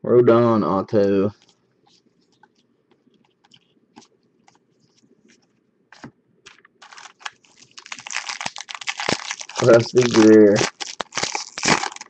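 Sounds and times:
foil wrapper crinkling: 6.0 - 12.0
trading cards rustling: 6.0 - 12.0.

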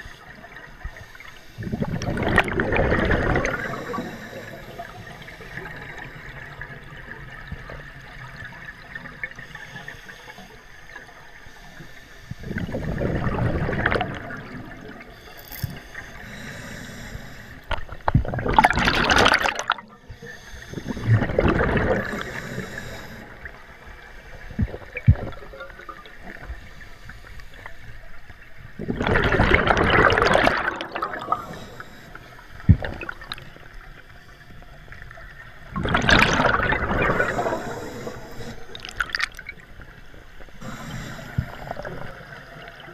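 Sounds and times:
air bubbling underwater: 1.6 - 4.0, 18.2 - 19.8, 21.0 - 22.2, 28.8 - 31.6, 35.7 - 39.5.

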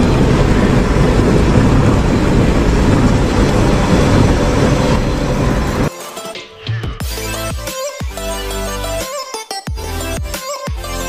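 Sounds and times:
bus road and engine noise: 0.0 - 5.9.

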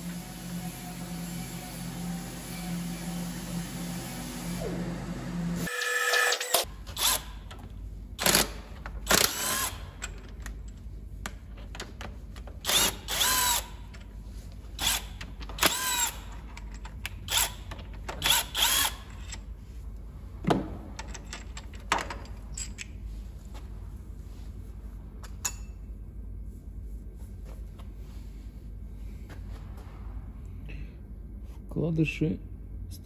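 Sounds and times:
power tool motor whine: 0.0 - 7.3.

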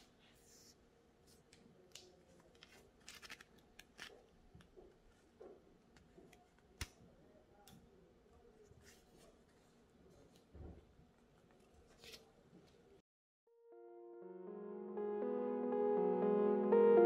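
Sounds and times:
paper pages rustling: 2.0 - 4.3.

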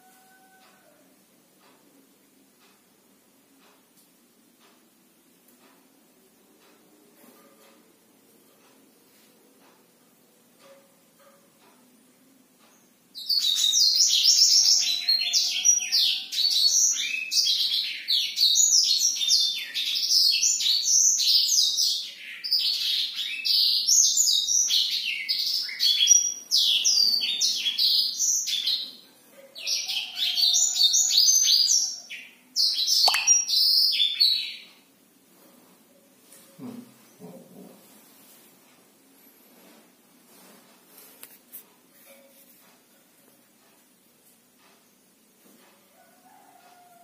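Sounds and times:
canary singing fast warbling song: 29.6 - 34.7.

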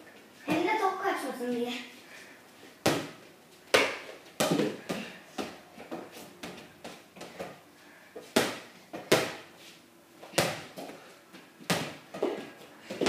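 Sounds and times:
ball thumping on wooden floor: 2.8 - 7.4.

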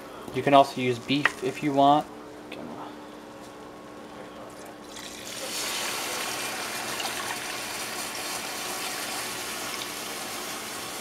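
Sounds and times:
liquid pouring into a pot: 4.9 - 10.9.

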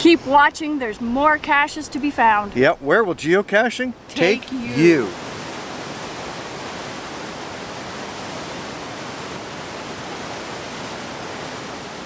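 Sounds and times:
waterfall rushing over rock: 4.2 - 12.0.

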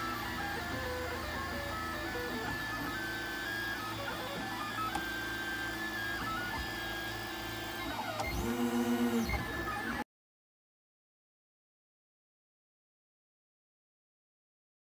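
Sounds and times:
stepper motors whining: 0.0 - 10.0.

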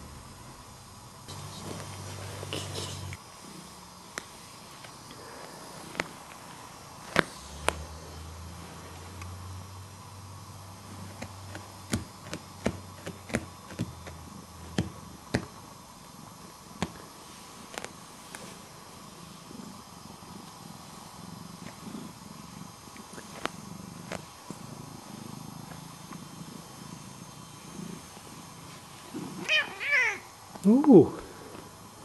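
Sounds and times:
cat purring: 0.0 - 32.0.

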